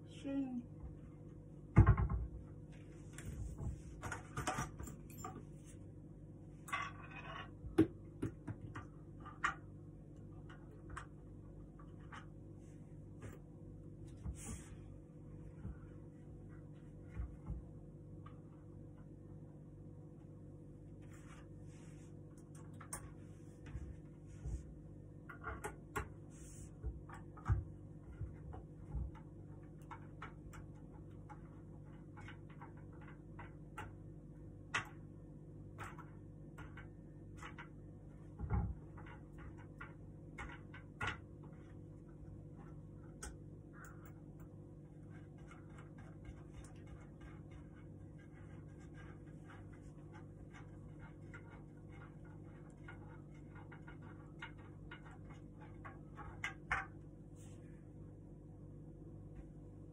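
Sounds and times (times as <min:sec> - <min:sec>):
faint hum: 0:00.0 - 0:59.9.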